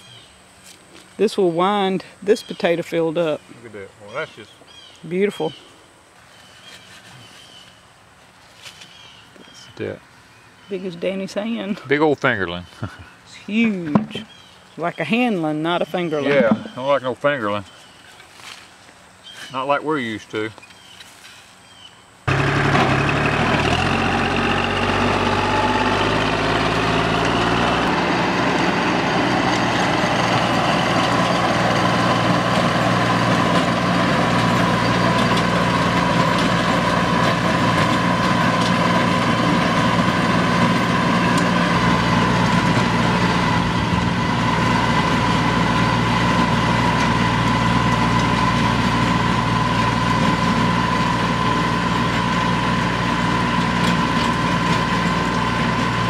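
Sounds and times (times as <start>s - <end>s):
tractor diesel engine running: 22.3s - 56.0s.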